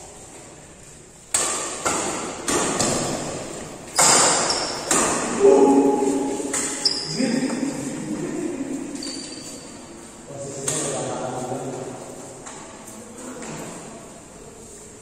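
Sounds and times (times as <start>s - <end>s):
rackets hitting shuttlecock: 1.3s - 5.5s, 6.2s - 7.1s.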